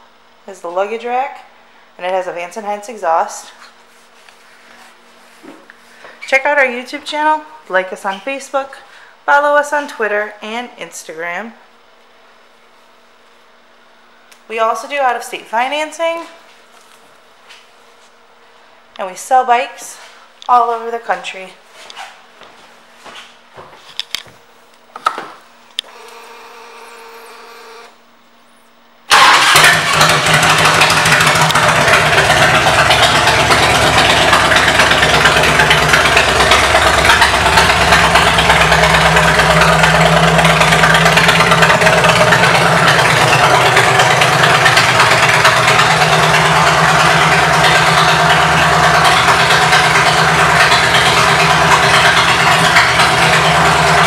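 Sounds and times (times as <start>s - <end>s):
motorcycle engine idling: 29.7s - 54.0s.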